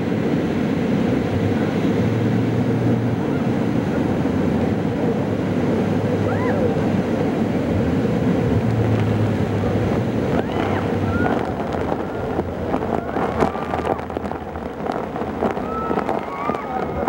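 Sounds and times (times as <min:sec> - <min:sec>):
speedboat engine hum: 0:00.0 - 0:17.0
water rushing: 0:00.0 - 0:17.0
wind buffeting microphone: 0:00.0 - 0:17.0
passengers calling out: 0:06.0 - 0:07.8, 0:09.6 - 0:17.0.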